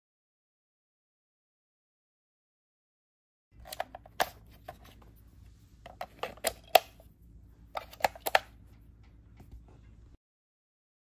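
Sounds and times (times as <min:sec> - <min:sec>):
plastic clicks and taps: 0:07.8 - 0:09.6.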